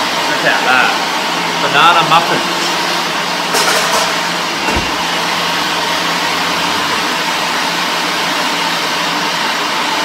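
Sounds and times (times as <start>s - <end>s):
low thump: 4.7s - 5.1s.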